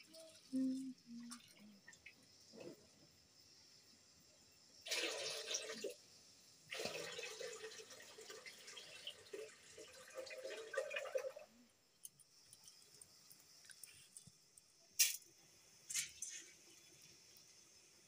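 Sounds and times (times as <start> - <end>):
water pouring into steel bucket: 4.8 - 11.6.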